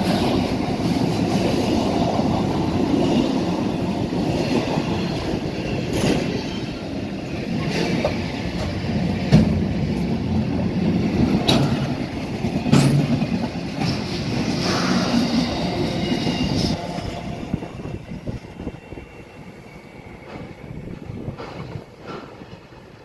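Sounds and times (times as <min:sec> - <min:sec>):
train wheels rumbling over rail joints: 0:00.0 - 0:23.0
high wheel squeal: 0:04.0 - 0:08.0, 0:14.0 - 0:21.0.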